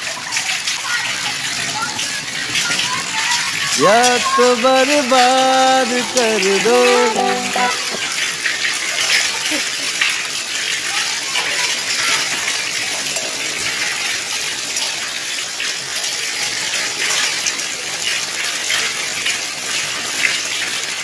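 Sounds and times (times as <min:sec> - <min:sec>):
hail and rain pattering: 0:00.0 - 0:21.0.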